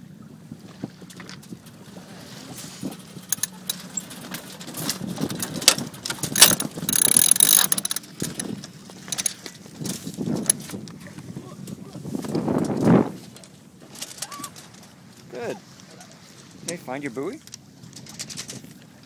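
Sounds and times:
winch clicking: 2.8s - 9.5s.

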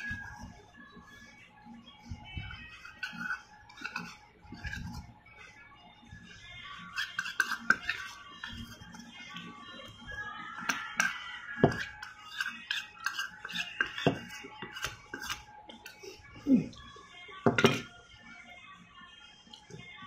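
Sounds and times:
metal spoon scraping ceramic bowl: 2.5s - 5.2s, 6.8s - 9.9s, 10.6s - 16.2s, 17.4s - 17.9s.

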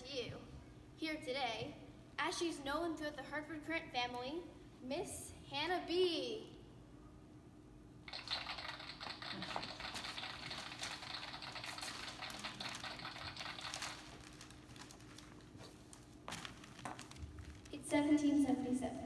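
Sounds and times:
newspaper rustling and crackling: 9.5s - 17.8s.

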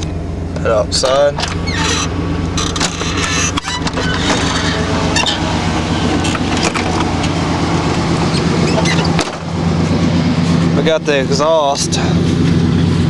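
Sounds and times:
pickup engine idling: 0.0s - 13.0s
truck door clicks and knocks: 8.4s - 9.6s.

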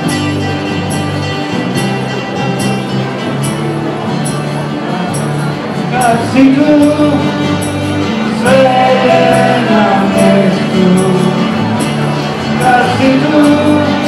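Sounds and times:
accordion: 0.0s - 14.0s
acoustic guitars: 0.0s - 14.0s
bass guitar: 0.0s - 14.0s
person singing: 5.8s - 14.0s.

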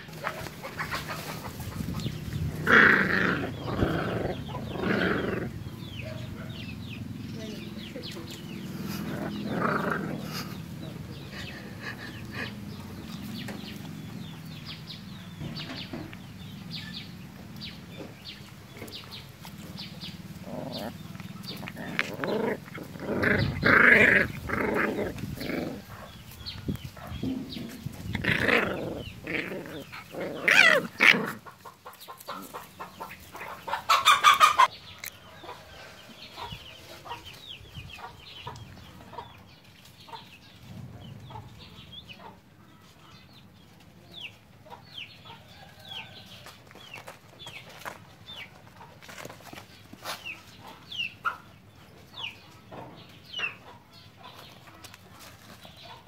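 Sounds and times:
farmyard animal calls: 0.0s - 56.0s.

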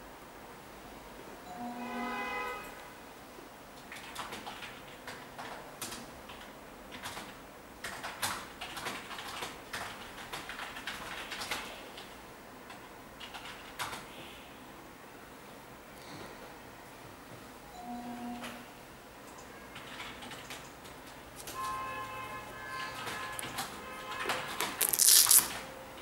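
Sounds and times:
sneaker handling clicks and rustles: 24.4s - 25.6s.

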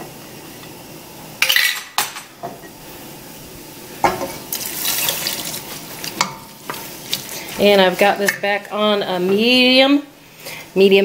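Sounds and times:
stock sizzling in hot pot: 0.0s - 10.8s
kitchenware clattering: 1.4s - 2.7s, 4.0s - 6.8s, 7.6s - 9.7s.

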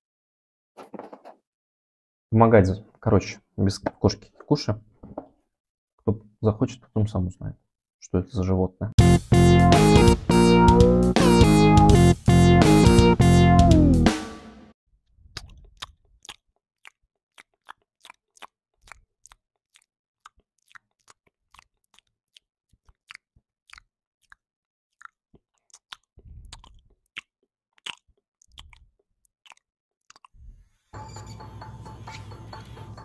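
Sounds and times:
cat chewing: 15.3s - 30.3s.

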